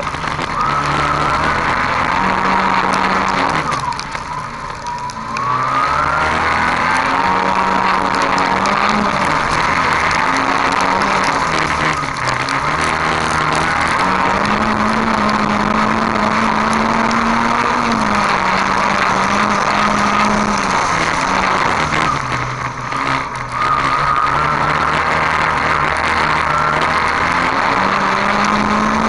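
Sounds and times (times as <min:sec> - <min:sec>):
race car engine running hard: 0:00.0 - 0:29.0
tyres on loose dirt: 0:00.0 - 0:29.0.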